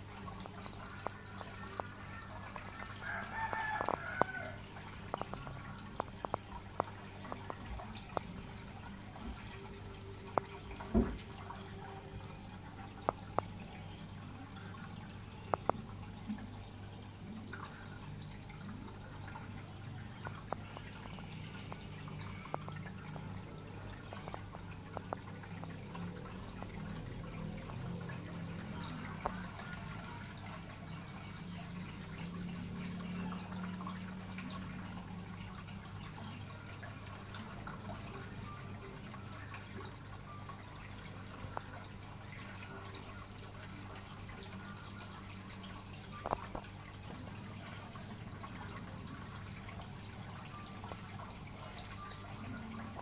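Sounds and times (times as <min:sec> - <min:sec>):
air bubbles rising and popping: 0:00.0 - 0:17.8, 0:18.4 - 0:34.8
aquarium pump hum: 0:00.0 - 0:53.0
water clicks and drips: 0:00.0 - 0:53.0
rooster crowing: 0:03.0 - 0:04.6.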